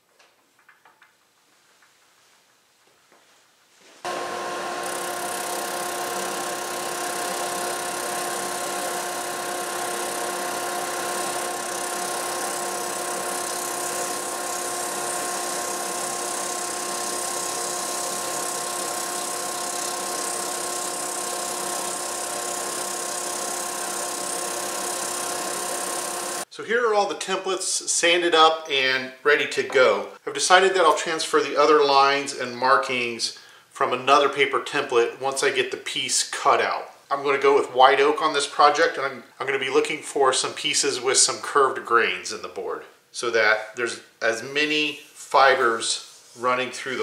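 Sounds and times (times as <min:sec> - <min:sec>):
dust collector rushing: 0:04.1 - 0:26.4
drum sander humming: 0:04.1 - 0:26.5.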